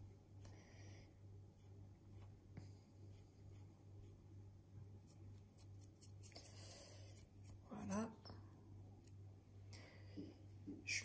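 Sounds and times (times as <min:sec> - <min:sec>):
low steady hum: 0:00.0 - 0:11.0
fingers rustling dry flour: 0:05.0 - 0:08.0.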